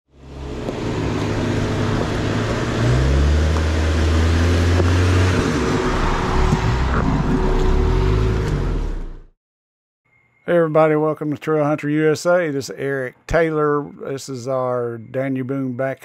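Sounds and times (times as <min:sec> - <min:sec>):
engine revving under load: 0:00.1 - 0:09.4.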